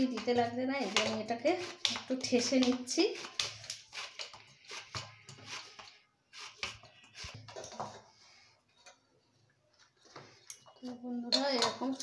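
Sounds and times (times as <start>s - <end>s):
hands kneading dough: 0.0s - 7.6s.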